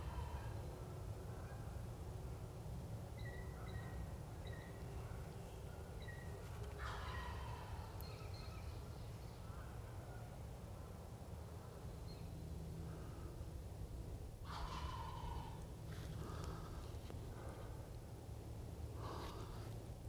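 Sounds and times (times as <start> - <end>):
steady low rumble: 6.8 - 20.0
turkey gobbling: 14.5 - 15.6.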